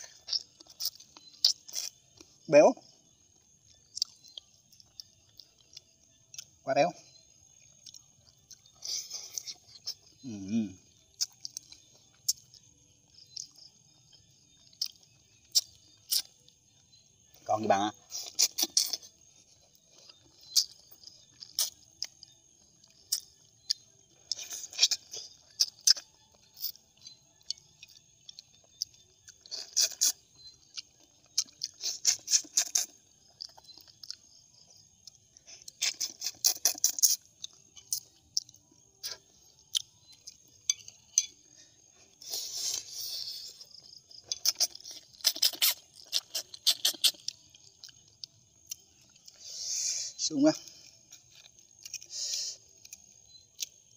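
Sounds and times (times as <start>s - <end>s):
wet chewing clicks and smacks: 0.0s - 49.4s, 50.4s - 53.9s
faint steady high tone: 37.4s - 42.1s.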